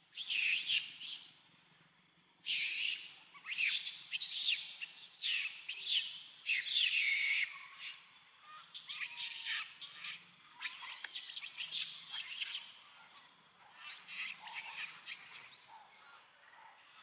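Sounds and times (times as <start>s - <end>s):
baby monkey screaming: 2.4s - 11.1s, 13.9s - 15.6s.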